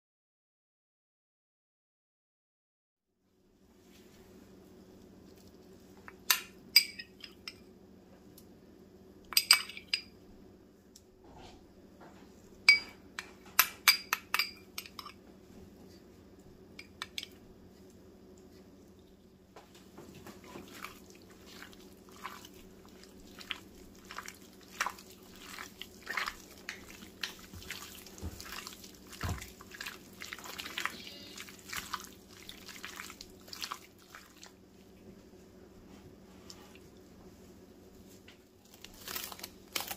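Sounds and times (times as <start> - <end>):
faint hum: 3.2 - 39.9
metal spoon clinking on glass bowl: 6.3 - 7.6, 9.4 - 10.1, 12.7 - 15.2
raw chicken squelching: 20.2 - 34.7.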